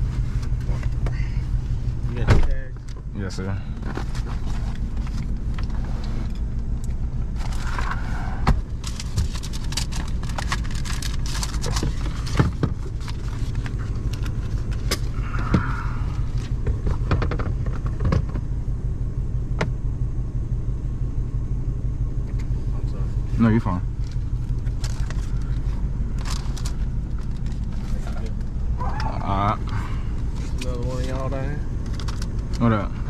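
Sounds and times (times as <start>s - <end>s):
engine idling from inside cab: 0.0s - 33.0s
small items clicking and rattling: 8.8s - 14.8s, 24.0s - 25.6s.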